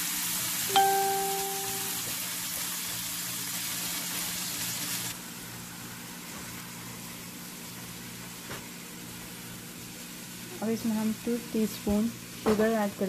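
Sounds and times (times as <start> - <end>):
food sizzling in oil: 0.0 - 5.2.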